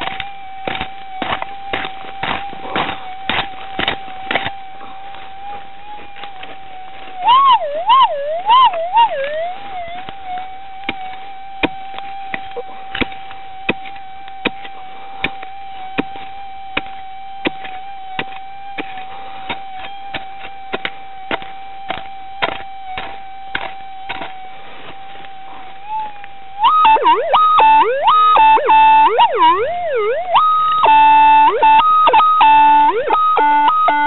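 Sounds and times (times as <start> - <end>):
pick striking stony dirt: 0.0 - 26.4
metal detector humming and warbling: 0.0 - 34.0.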